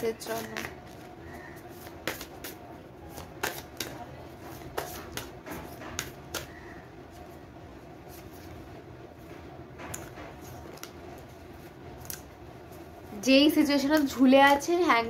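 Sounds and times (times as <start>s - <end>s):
cards being shuffled: 0.2s - 7.3s, 9.9s - 13.2s.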